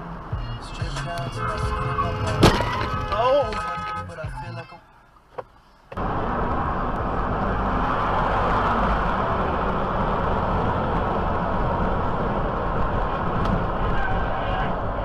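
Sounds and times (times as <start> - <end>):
low road rumble: 0.0 - 15.0
tyre and wind noise in car: 2.2 - 4.0, 5.3 - 15.0.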